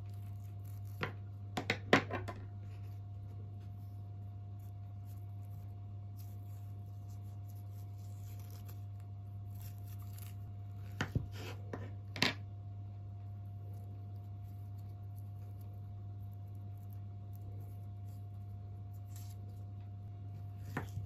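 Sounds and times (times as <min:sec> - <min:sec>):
skin peeling off sweet potato: 0:00.0 - 0:01.2, 0:04.5 - 0:11.0, 0:13.7 - 0:19.8.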